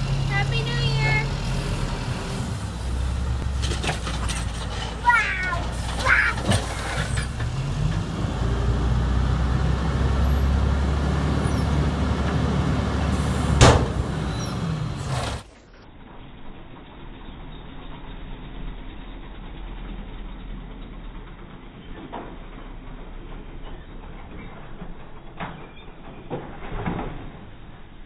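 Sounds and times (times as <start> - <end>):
garbage truck droning: 0.0 - 28.0
loud bang: 13.5 - 14.5
short high squeaks: 14.1 - 15.5.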